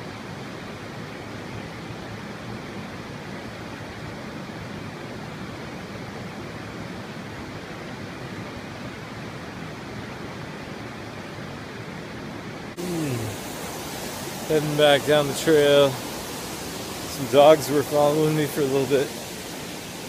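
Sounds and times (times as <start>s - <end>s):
waterfall rushing: 12.7s - 20.0s.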